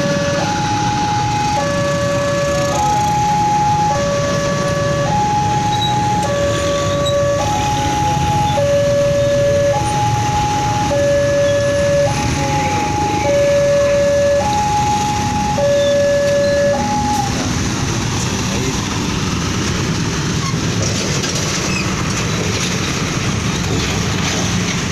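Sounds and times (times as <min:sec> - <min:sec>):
two-tone level crossing alarm: 0:00.0 - 0:17.5.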